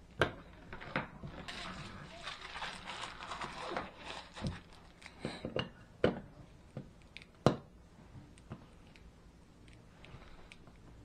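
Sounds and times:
plastic cover rustling: 0:00.7 - 0:05.2.

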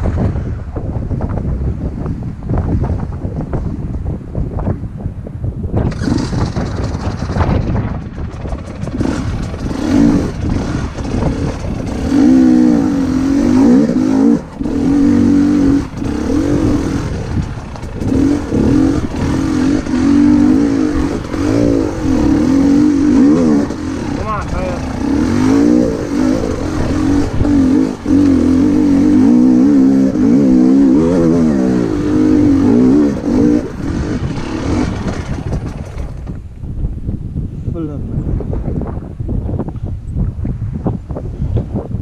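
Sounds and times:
dirt bike engine revving: 0:05.8 - 0:36.3.

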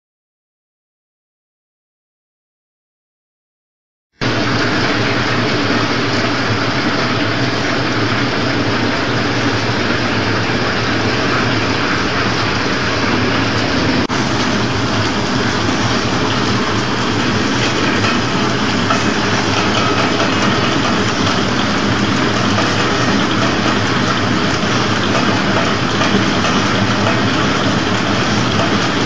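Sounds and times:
packaging machinery humming: 0:04.2 - 0:29.0.

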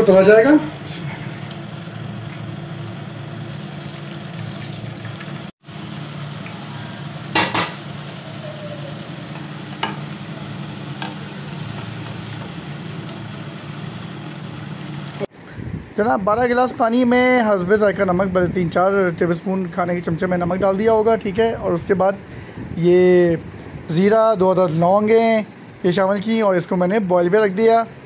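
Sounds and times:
potatoes sizzling in hot oil: 0:01.6 - 0:15.3.

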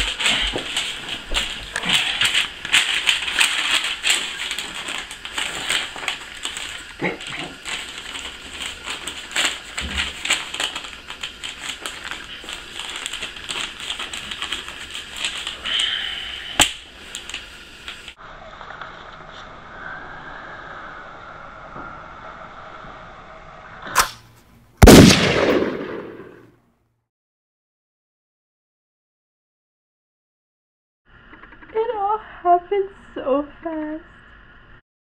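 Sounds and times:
bedding and paper rustling: 0:00.0 - 0:16.2
short hiss: 0:23.9 - 0:24.3
sharp click: 0:24.0 - 0:24.2.

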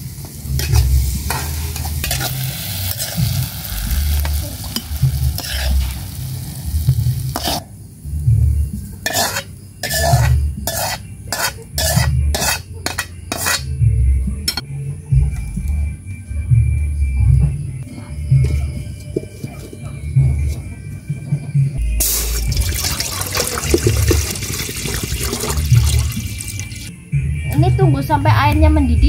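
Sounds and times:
oil sizzling: 0:00.0 - 0:07.6, 0:22.0 - 0:26.9
metal spatula scraping wok: 0:00.5 - 0:06.3, 0:07.2 - 0:07.7, 0:09.0 - 0:13.7.

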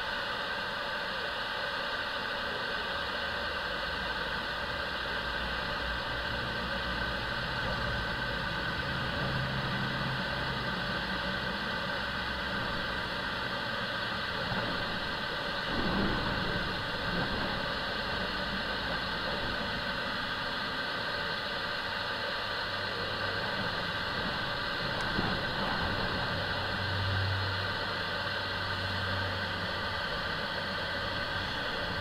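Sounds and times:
jet engines whining: 0:00.0 - 0:32.0.

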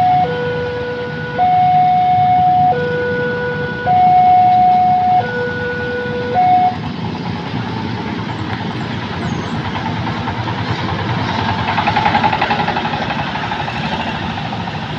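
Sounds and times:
two-tone warning signal: 0:00.0 - 0:06.8
motorcycles and road traffic: 0:00.0 - 0:14.9
rapid pulsing small engine: 0:07.2 - 0:14.9.

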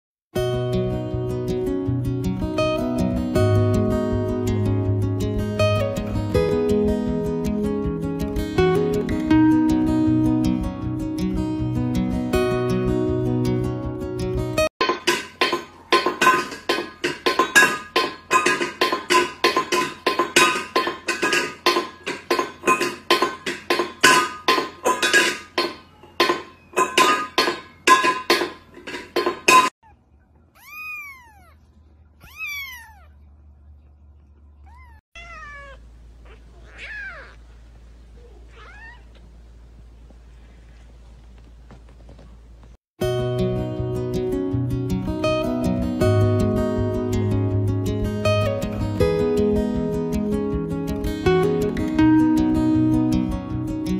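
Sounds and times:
cat knocking steel bowl: 0:14.8 - 0:29.7
cat meowing: 0:29.8 - 0:31.6, 0:32.2 - 0:33.2, 0:34.6 - 0:37.4, 0:38.2 - 0:39.2.

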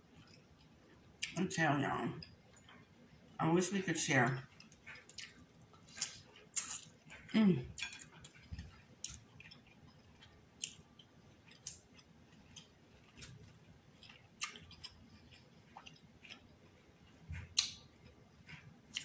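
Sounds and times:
close chewing: 0:00.0 - 0:01.4, 0:02.2 - 0:03.0, 0:04.4 - 0:19.0
wet mouth clicks and smacks: 0:04.6 - 0:07.0, 0:14.0 - 0:15.0, 0:17.4 - 0:17.9.

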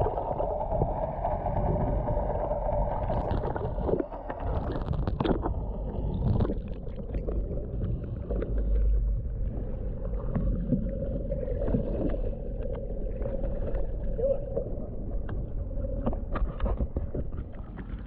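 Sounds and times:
wind on microphone: 0:00.0 - 0:08.0.

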